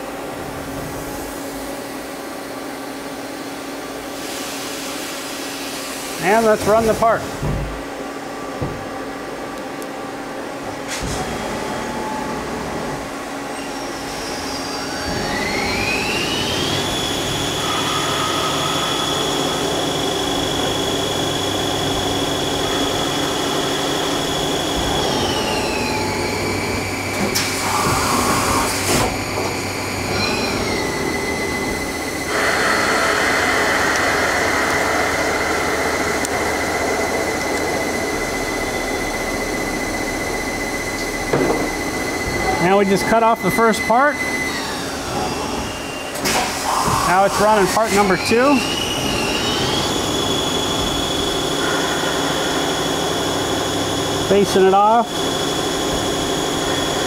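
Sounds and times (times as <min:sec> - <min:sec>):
lathe spindle whine: 0:11.3 - 0:57.0
metal cutting noise: 0:14.2 - 0:57.0.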